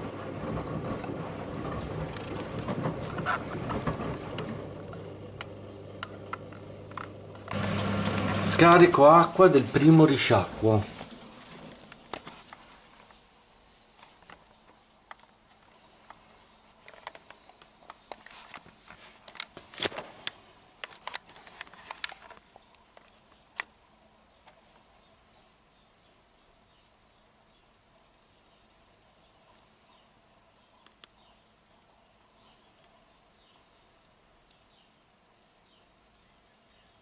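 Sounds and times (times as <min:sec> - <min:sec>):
faint washing machine hum: 0:00.0 - 0:13.0.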